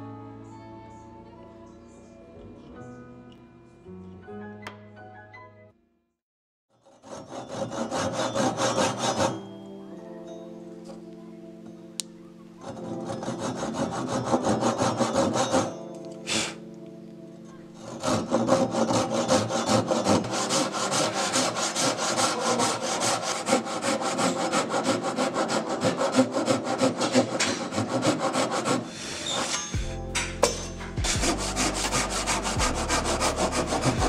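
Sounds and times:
handsaw sawing wood: 6.8s - 9.5s, 12.6s - 16.6s, 17.8s - 34.0s.

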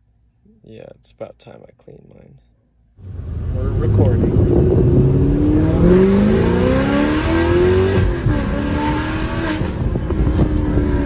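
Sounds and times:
car engine accelerating hard: 3.0s - 11.0s.

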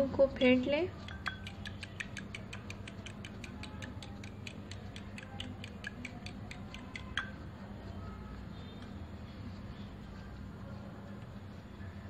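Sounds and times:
fork beating eggs in glass bowl: 0.4s - 7.5s.

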